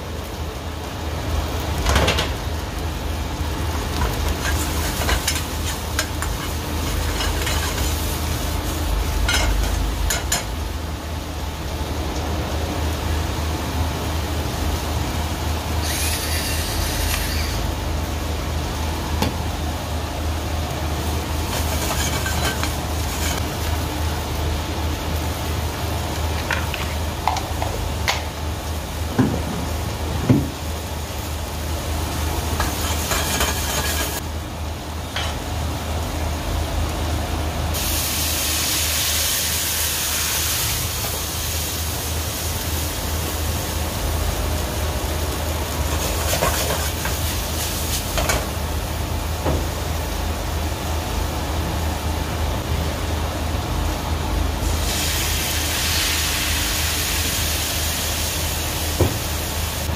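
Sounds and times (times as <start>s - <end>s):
food sizzling in a frying pan: 0.0s - 37.1s, 37.7s - 52.8s, 54.5s - 59.9s.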